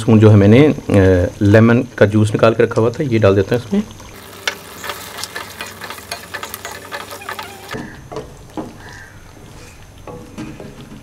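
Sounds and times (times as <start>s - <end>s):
wooden spoon scraping a pot: 4.2s - 8.0s.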